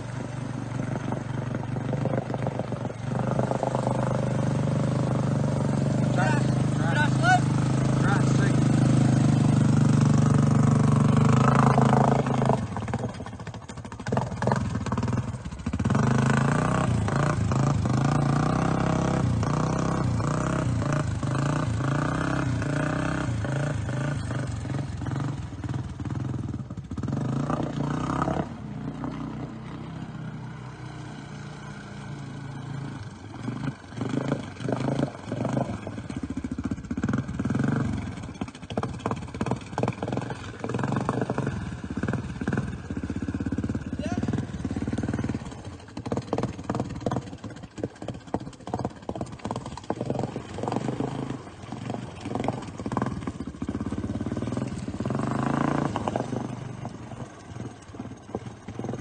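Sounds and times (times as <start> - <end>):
atv engine revving: 0.0 - 59.0
vehicle churning through muddy water: 0.0 - 59.0.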